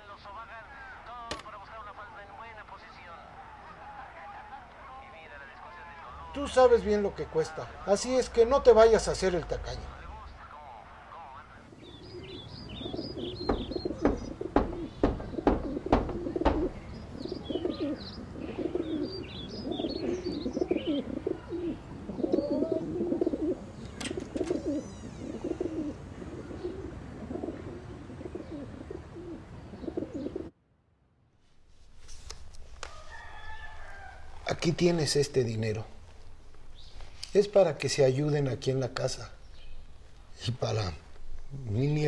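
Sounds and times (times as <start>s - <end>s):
small birds chirping: 1.7s - 30.5s, 32.2s - 42.0s
pigeons cooing: 11.7s - 30.5s
sharp knocks: 13.3s - 16.9s.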